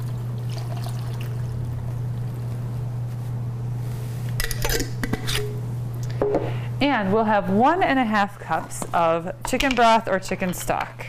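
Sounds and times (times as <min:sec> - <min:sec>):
milk pouring: 0:00.0 - 0:02.5
steady low hum: 0:00.0 - 0:11.0.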